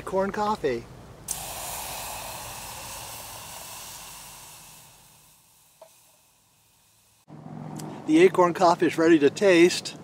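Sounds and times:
water sizzling on hot meal: 0:01.3 - 0:07.3.

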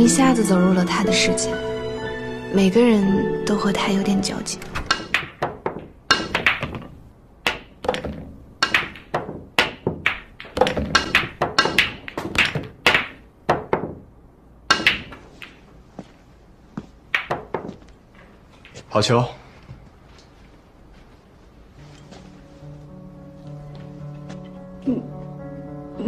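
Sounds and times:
pool balls knocking together: 0:04.8 - 0:14.1, 0:14.7 - 0:15.7, 0:17.1 - 0:17.8.

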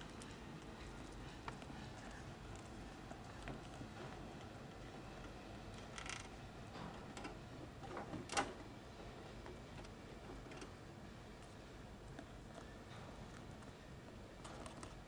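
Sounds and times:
small rattle: 0:05.8 - 0:06.4.

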